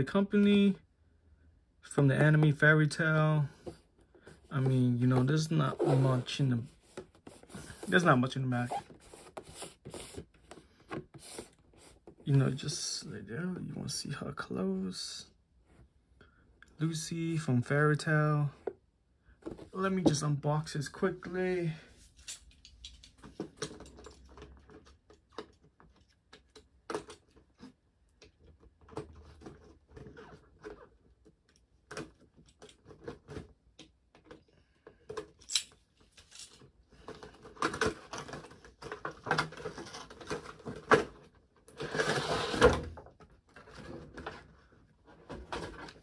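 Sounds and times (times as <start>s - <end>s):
plastic rustling and scraping: 1.9s - 13.1s, 22.0s - 46.0s.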